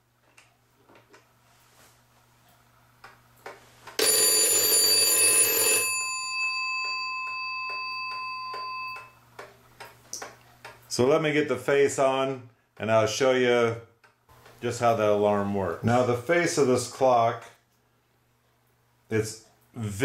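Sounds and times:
alarm clock bell ringing: 0:04.0 - 0:09.2.

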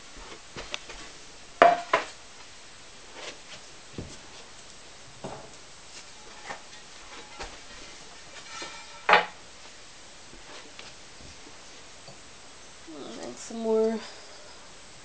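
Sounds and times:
ceramic knocks and clinks in kiln: 0:01.6 - 0:02.1, 0:08.4 - 0:09.4.

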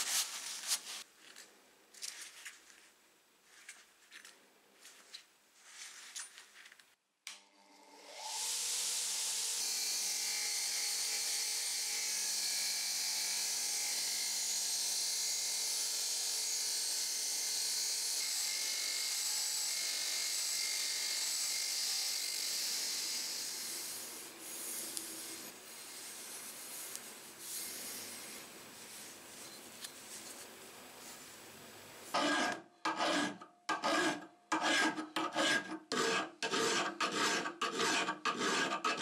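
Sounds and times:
gloved hands rubbing metal: 0:00.0 - 0:01.1, 0:24.4 - 0:31.2
wire-brush wheel scraping steel: 0:32.1 - 0:39.0.

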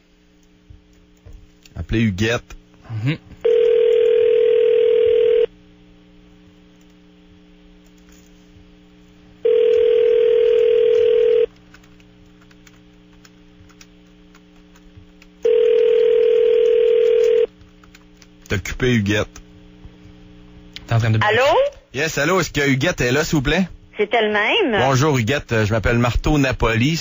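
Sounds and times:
telephone ringback tone: 0:03.4 - 0:05.5, 0:09.4 - 0:11.5, 0:15.4 - 0:17.5.

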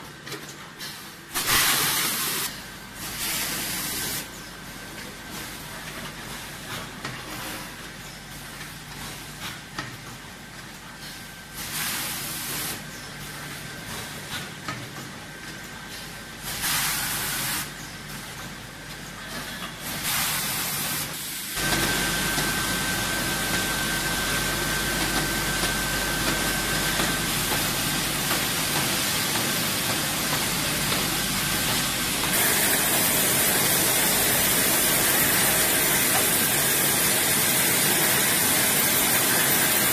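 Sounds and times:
water jets spraying: 0:21.6 - 0:39.9.

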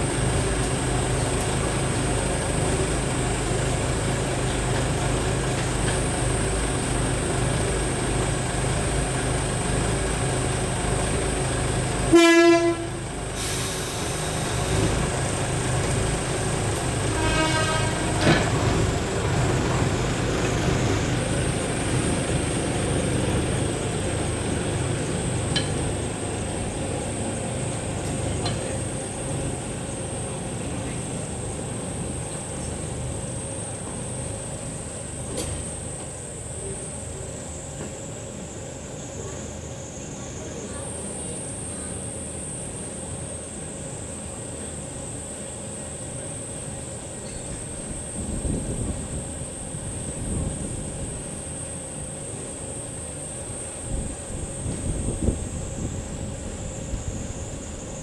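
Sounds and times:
diesel locomotive engine running: 0:00.0 - 0:58.0
locomotive horn blast: 0:12.1 - 0:13.2, 0:16.8 - 0:18.8.

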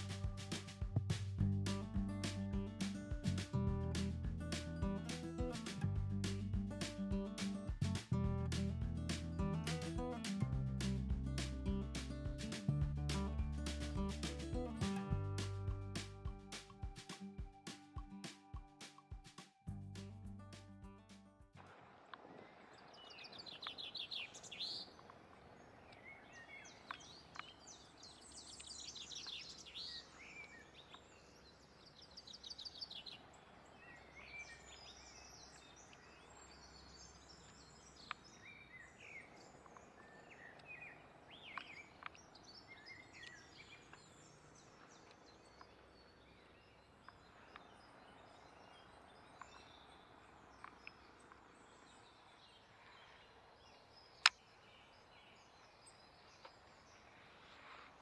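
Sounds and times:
songbirds chirping and trilling: 0:22.3 - 0:58.0.

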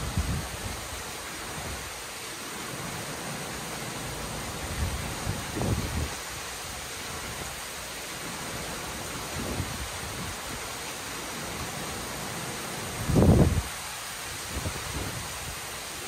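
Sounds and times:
heavy rain: 0:00.0 - 0:16.0.

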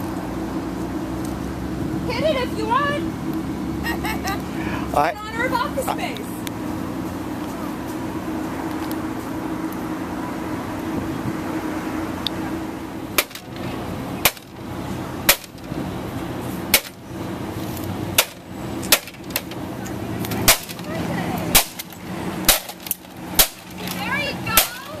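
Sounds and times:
steady low hum: 0:00.0 - 0:25.0
metal pipe smashing plastic printer: 0:22.5 - 0:23.8.

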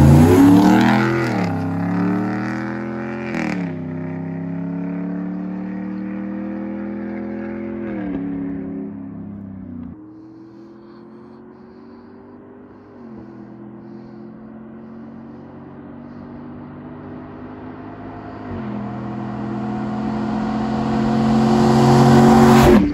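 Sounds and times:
pickup engine accelerating: 0:00.0 - 0:22.9.

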